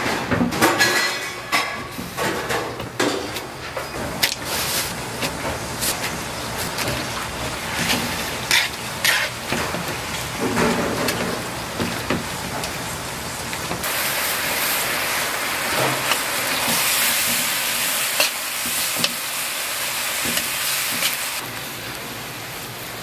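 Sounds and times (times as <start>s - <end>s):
vegetables sizzling in a wok: 2.8s - 23.0s
metal spatula scraping a pan: 7.6s - 9.8s.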